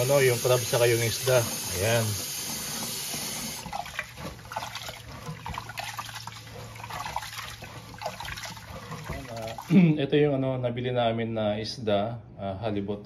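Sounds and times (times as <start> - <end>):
tap water running into pot: 0.0 - 9.8.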